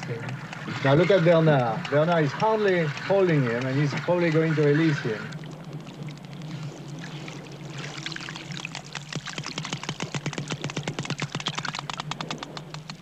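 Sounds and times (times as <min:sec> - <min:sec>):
dolphin echolocation clicks: 0:00.0 - 0:13.0
soft watery hiss: 0:01.6 - 0:11.4.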